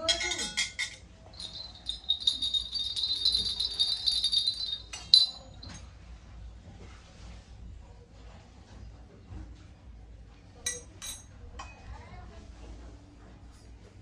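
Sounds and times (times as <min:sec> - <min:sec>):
sharp metal clink: 0:00.2 - 0:05.8
small brass pieces jingling: 0:01.4 - 0:05.8.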